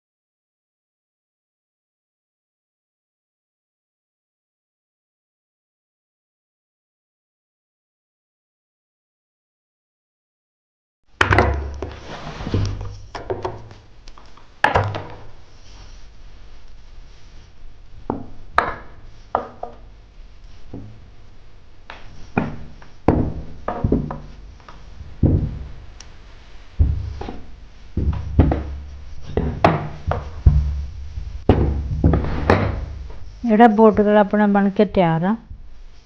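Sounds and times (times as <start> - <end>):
iron knocking on wooden table: 11.2 - 13.6, 14.6 - 15.2, 18.1 - 19.8, 22.4 - 25.9, 26.8 - 33.3
low rumbling of iron on fabric: 15.2 - 34.0.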